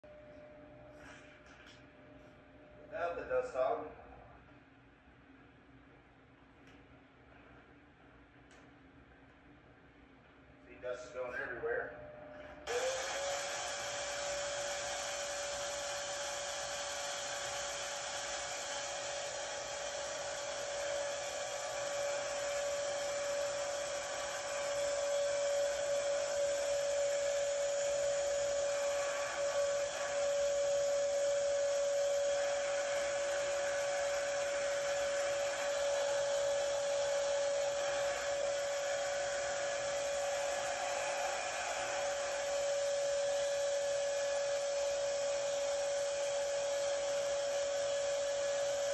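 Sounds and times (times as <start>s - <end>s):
shop vacuum running: 10.8s - 48.9s.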